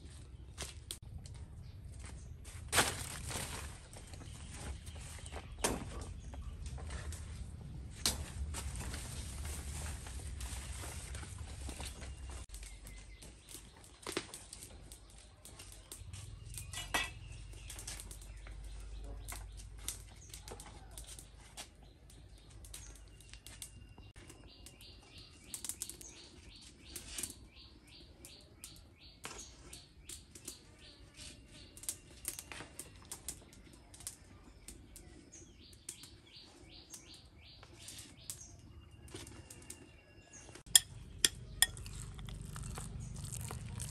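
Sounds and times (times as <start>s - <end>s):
banana leaf rustling and flapping: 2.5s - 6.0s, 6.8s - 12.6s
birds chirping: 10.8s - 43.9s.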